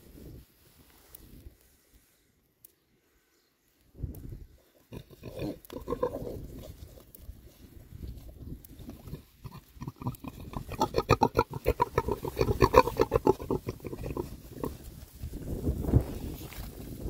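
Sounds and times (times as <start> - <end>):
pig grunting and snuffling: 4.6 - 15.1.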